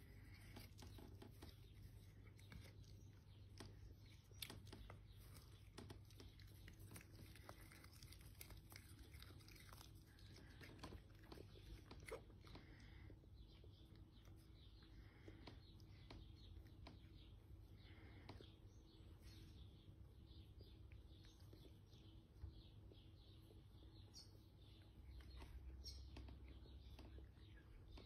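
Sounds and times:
cats chewing grass: 0:00.0 - 0:18.6
low steady hum: 0:00.0 - 0:28.0.

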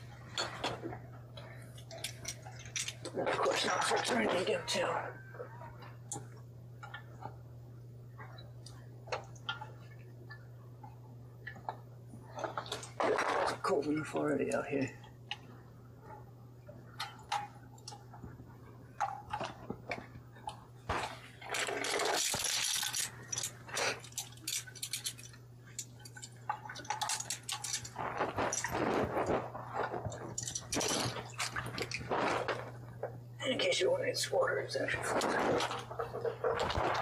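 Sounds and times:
steady low hum: 0:00.0 - 0:37.0
water splashing and sloshing: 0:08.2 - 0:37.0.

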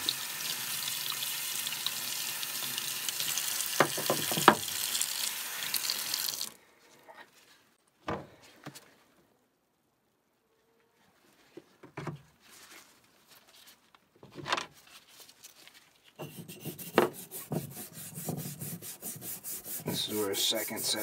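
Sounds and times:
tap water running into sink: 0:00.0 - 0:06.6
chisel knocking in sink: 0:03.8 - 0:04.6.

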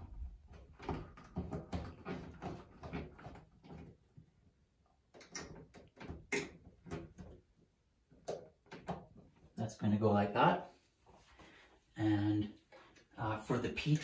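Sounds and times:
sharp clicks and knocks: 0:05.1 - 0:07.4.

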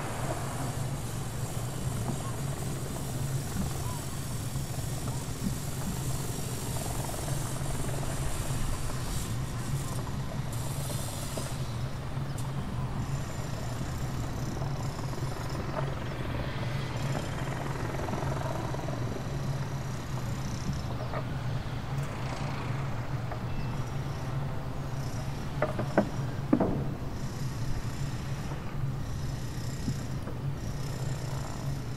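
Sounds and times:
even hiss: 0:00.0 - 0:21.0
ship engines droning: 0:00.0 - 0:31.9.

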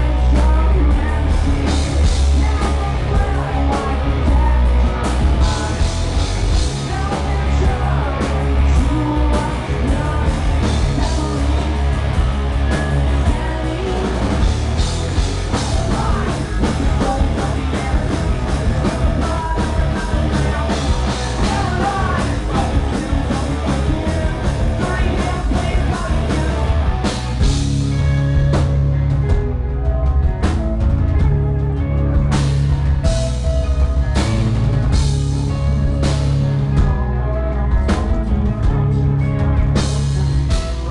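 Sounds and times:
man singing: 0:00.0 - 0:11.9, 0:12.8 - 0:14.5, 0:15.5 - 0:27.1
heavy bass line: 0:00.0 - 0:40.9
live rock band playing: 0:00.0 - 0:40.9.

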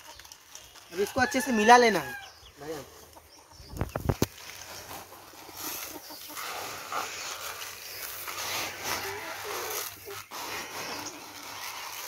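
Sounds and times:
granules rustling and scraping: 0:02.6 - 0:12.0.

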